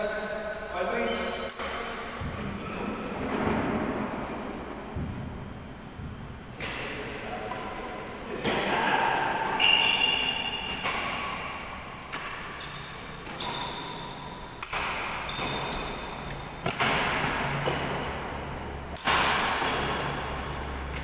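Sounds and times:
rackets hitting shuttlecock: 6.0s - 7.1s, 9.4s - 18.3s, 18.9s - 21.0s
ringing ping: 9.6s - 10.8s.

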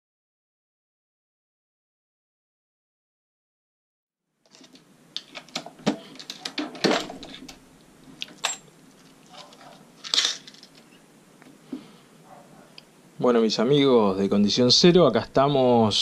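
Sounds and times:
metal cartridge cases clinking: 4.5s - 7.6s, 8.2s - 8.7s, 9.3s - 10.9s
soft handling noise: 4.5s - 12.9s.

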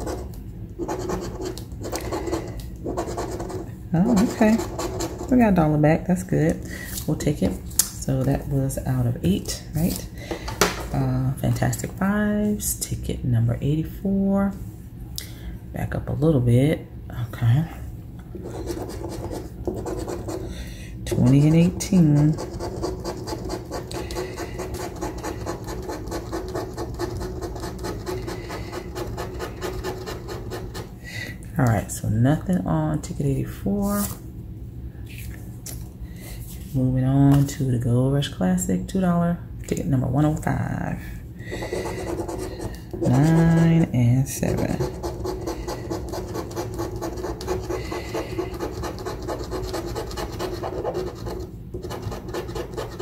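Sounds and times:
coin scraping scratch card: 0.0s - 5.3s, 18.4s - 20.5s, 21.1s - 30.9s, 41.6s - 43.6s, 44.5s - 53.0s.

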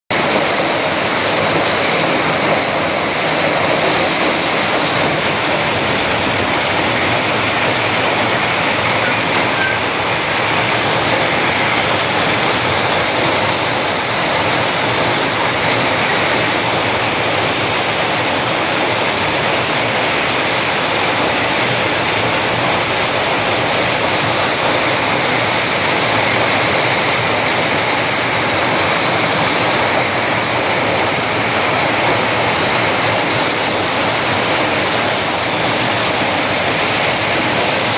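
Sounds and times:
hail pelting wet pavement: 0.1s - 37.9s.

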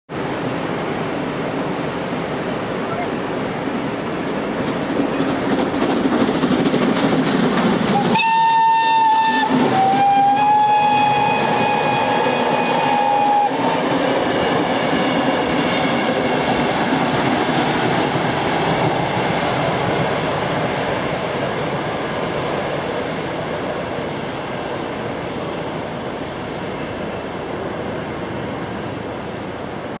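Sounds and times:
steam train running on rails: 0.1s - 30.0s
steam whistle blasts: 8.0s - 13.9s.

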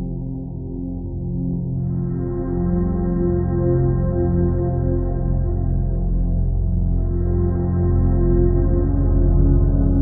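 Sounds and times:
ambient music of sustained notes: 0.0s - 10.0s.

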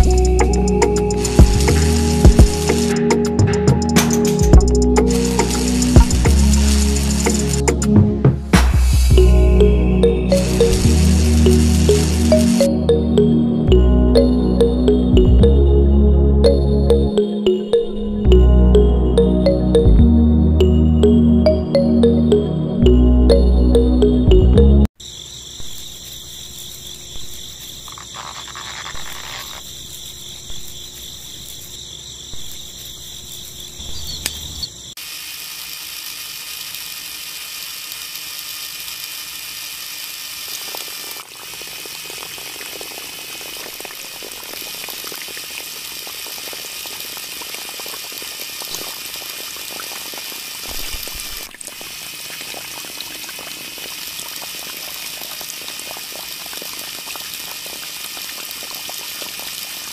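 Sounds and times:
high-pitched chirring: 9.0s - 15.8s
water splashing onto ground: 41.2s - 59.9s.

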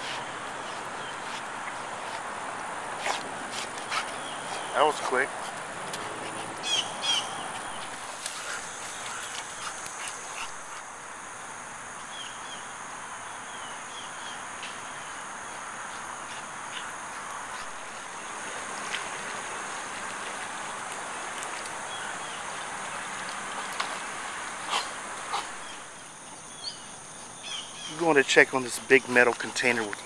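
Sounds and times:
bird chirps: 6.6s - 7.9s.

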